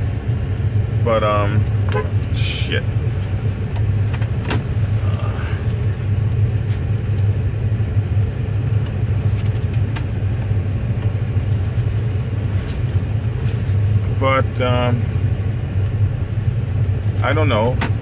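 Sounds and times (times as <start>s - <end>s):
car engine rumble: 0.0s - 18.0s
road noise: 0.0s - 18.0s.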